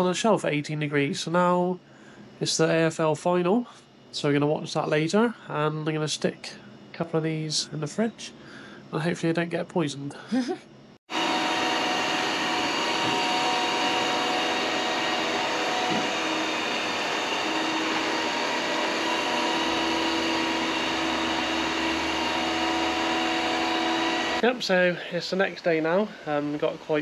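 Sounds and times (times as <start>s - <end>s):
robot vacuum cleaner running: 11.1s - 27.0s.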